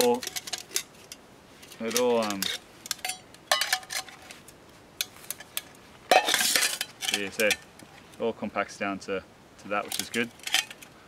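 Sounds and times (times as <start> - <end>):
metal bottle scraping rattle: 0.0 - 4.4, 5.2 - 8.1, 9.8 - 10.9.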